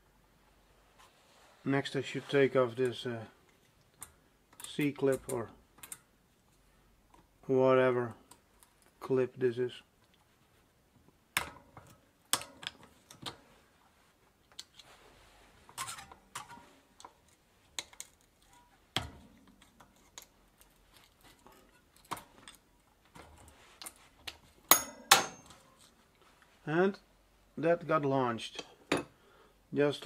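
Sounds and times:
screwdriver clicking and scraping metal: 0:15.7 - 0:22.7.

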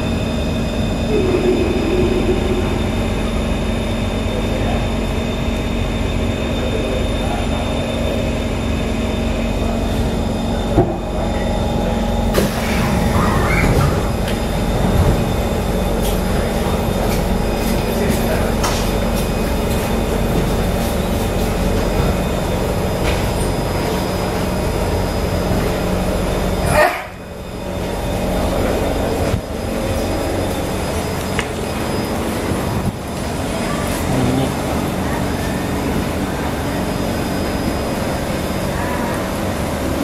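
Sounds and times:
metro car hum: 0:00.0 - 0:40.0
platform sound: 0:01.1 - 0:03.5
train doors sliding open: 0:12.3 - 0:24.6.

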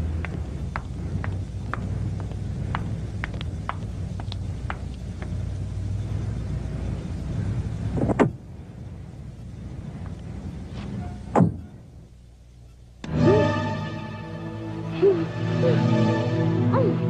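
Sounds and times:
car engine rumbling: 0:00.0 - 0:15.8
sharp thuds: 0:10.8 - 0:11.8.

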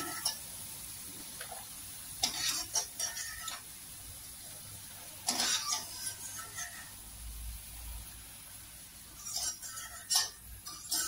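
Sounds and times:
food sizzling in hot oil: 0:00.0 - 0:11.0
spoon clinking and scraping: 0:09.2 - 0:11.0.

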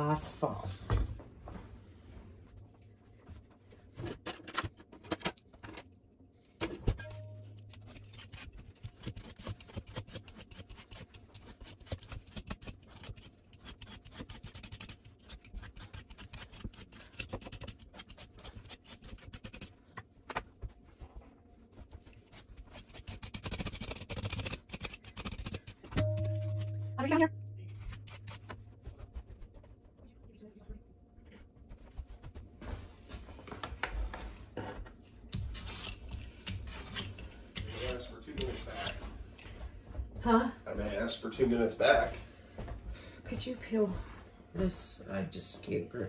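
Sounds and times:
vegetable peeler scraping squash skin: 0:07.6 - 0:19.7, 0:22.1 - 0:26.7, 0:27.8 - 0:28.5, 0:35.3 - 0:39.0.

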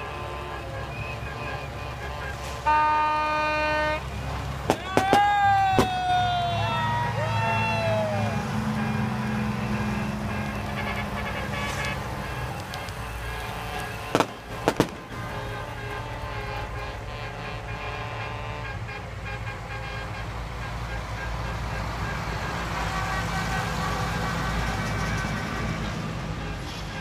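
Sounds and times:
steady horn tones: 0:00.0 - 0:05.9, 0:06.5 - 0:27.0
vehicle engines driving past: 0:00.0 - 0:27.0
sharp bangs: 0:04.6 - 0:06.0, 0:14.1 - 0:15.6.

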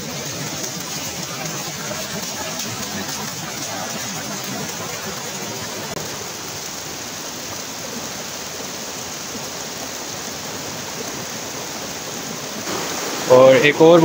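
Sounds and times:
spring water splashing on rock: 0:00.0 - 0:06.1.

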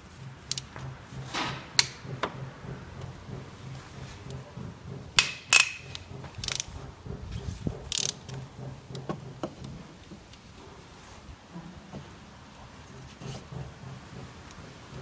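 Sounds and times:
ratchet clicks: 0:00.3 - 0:10.4
bolts cracking loose: 0:00.4 - 0:10.5.

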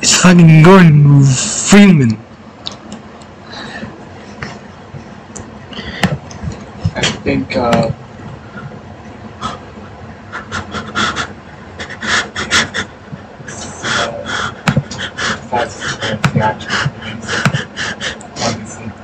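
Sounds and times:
person puffing breaths: 0:05.7 - 0:07.0, 0:10.3 - 0:18.7.

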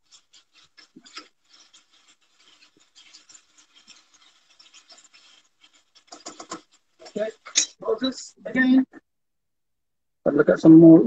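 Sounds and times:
chicken sizzling in a pan: 0:00.0 - 0:08.0.

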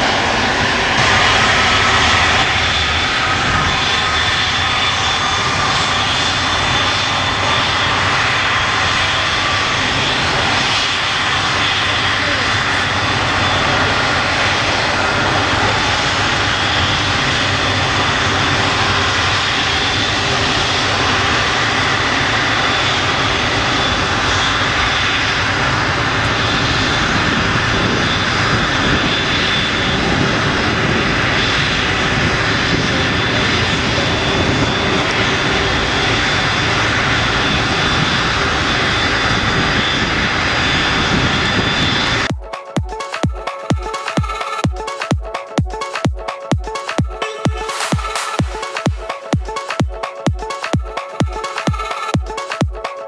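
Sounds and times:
jet engines rushing with whine: 0:00.0 - 0:53.0
music: 0:42.3 - 0:53.0.

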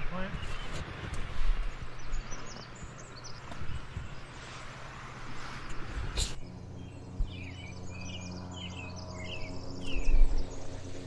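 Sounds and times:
distant boat motor drone: 0:00.0 - 0:11.0
small bird chirping: 0:05.6 - 0:10.8.

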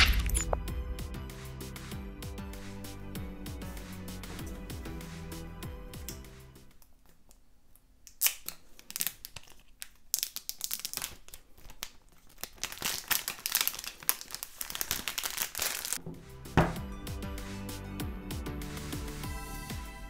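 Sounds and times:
background music: 0:00.0 - 0:06.7, 0:16.0 - 0:20.0
plastic wrap tearing and crinkling: 0:08.2 - 0:16.0.

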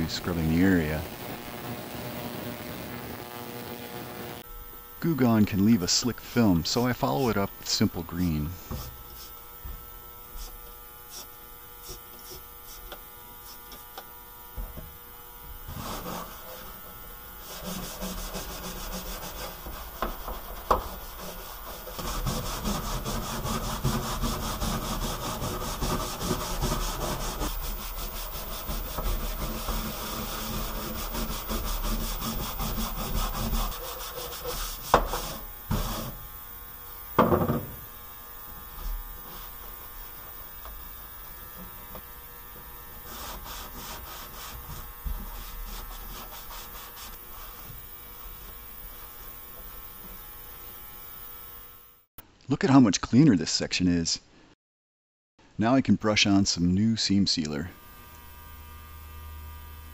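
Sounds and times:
ultrasonic cleaner electric hum: 0:00.0 - 0:52.1, 0:56.2 - 0:59.9
scrub pad scrubbing steel: 0:05.1 - 0:09.4, 0:15.7 - 0:36.2, 0:38.7 - 0:40.8, 0:42.9 - 0:49.2.

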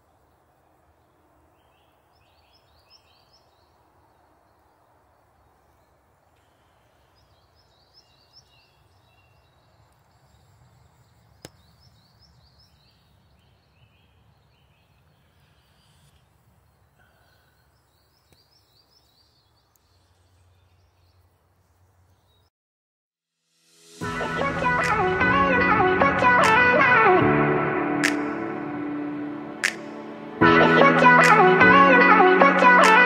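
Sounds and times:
faint birdsong chirps: 0:00.0 - 0:22.5.

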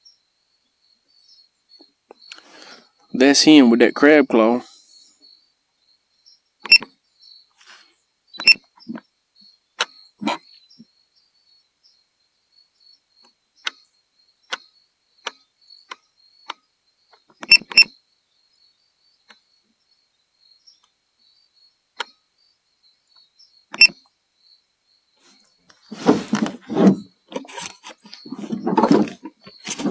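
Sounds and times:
sharp clicks: 0:23.7 - 0:24.0.

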